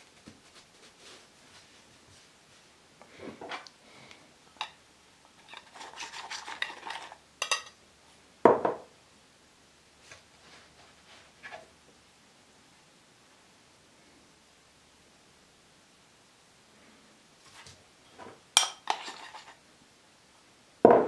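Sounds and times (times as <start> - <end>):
metal clinking against bowl: 7.4 - 7.8.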